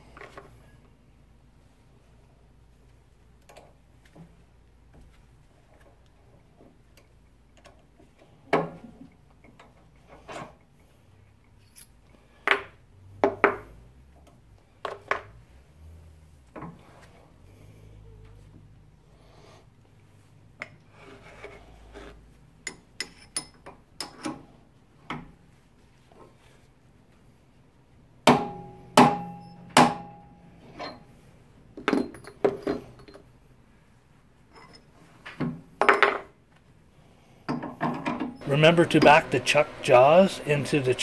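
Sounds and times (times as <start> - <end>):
hammer striking metal wedge: 28.3 - 30.4.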